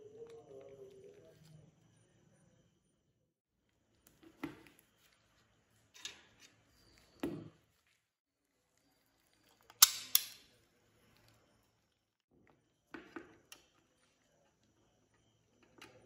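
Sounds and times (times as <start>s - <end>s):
plastic model parts snapping: 9.7s - 10.4s.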